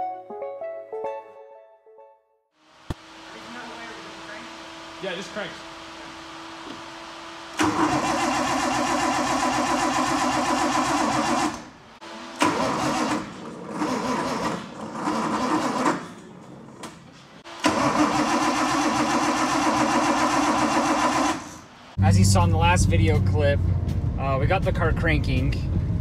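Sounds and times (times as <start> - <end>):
engine cranking on starter: 7.5 - 11.7, 12.4 - 16.2, 17.5 - 21.7.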